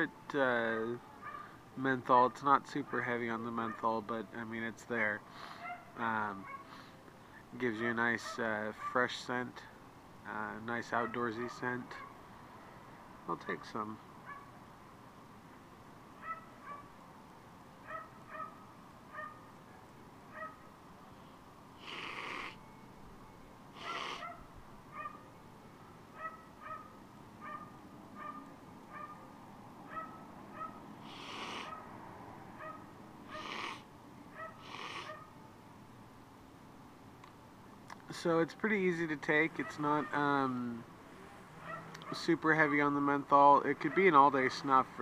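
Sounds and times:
person sniffing sharply: 5.3 - 5.8, 23.8 - 24.2, 31.0 - 31.7, 33.3 - 33.9, 34.6 - 35.2.

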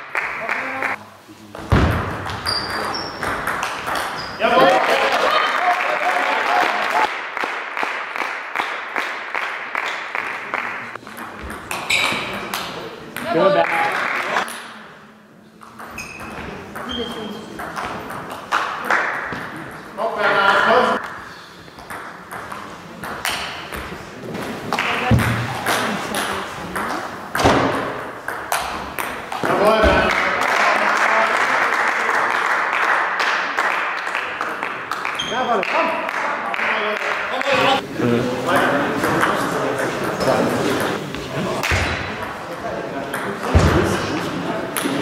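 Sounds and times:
people clapping: 0.0 - 1.0, 3.5 - 11.0, 12.5 - 14.5, 18.3 - 19.4, 24.7 - 26.4, 28.5 - 38.2.

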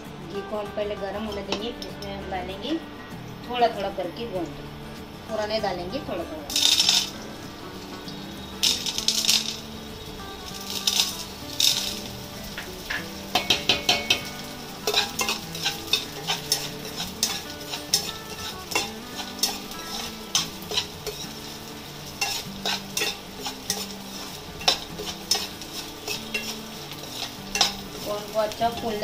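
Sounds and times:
gum pieces sizzling in hot oil: 3.8 - 29.0
spatula scraping and tapping pan: 6.5 - 29.0.

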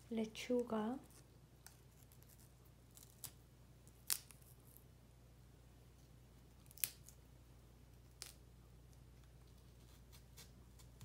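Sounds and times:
faint steady hum: 0.0 - 11.0
crisp lettuce snaps: 1.1 - 4.8, 6.6 - 7.2, 8.0 - 11.0.

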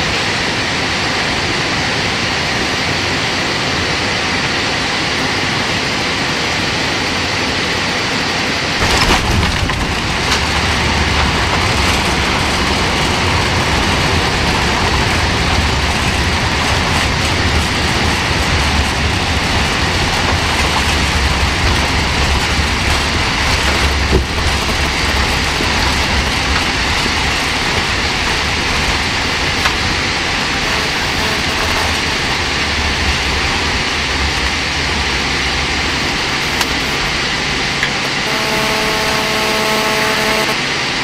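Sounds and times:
engines and airflow rushing: 0.0 - 41.0
runway rumble: 0.0 - 41.0
announcement system tone: 23.5 - 29.8, 30.4 - 33.0, 35.9 - 37.3, 37.9 - 40.7.

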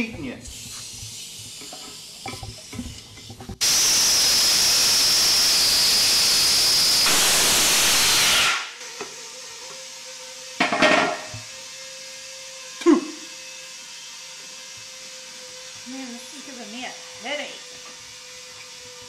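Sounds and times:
compressed air hissing into tire: 0.4 - 8.8.

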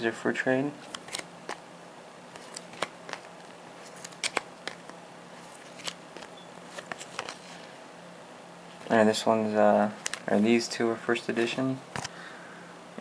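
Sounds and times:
trading cards being shuffled: 0.8 - 1.6, 2.3 - 7.7, 9.9 - 10.4.

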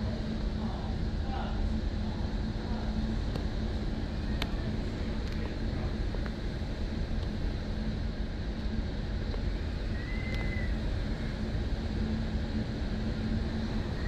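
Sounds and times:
faint steady hum: 0.0 - 14.0
wind and heavy rain: 0.0 - 14.0
faint high whistle: 9.8 - 11.4.

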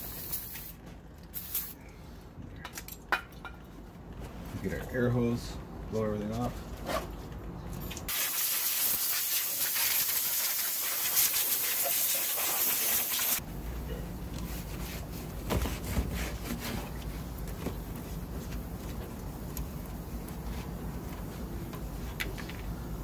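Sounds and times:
air hose blasting: 8.1 - 13.4.

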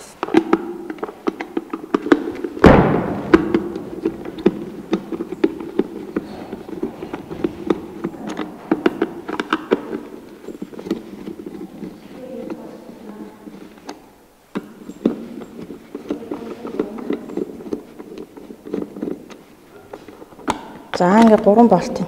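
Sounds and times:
loud knock: 2.6 - 6.6.

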